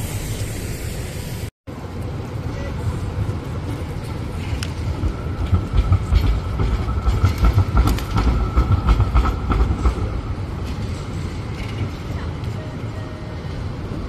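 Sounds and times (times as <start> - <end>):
tram rumbling past: 0.0 - 14.0
wheels clacking over rail junction: 2.0 - 14.0.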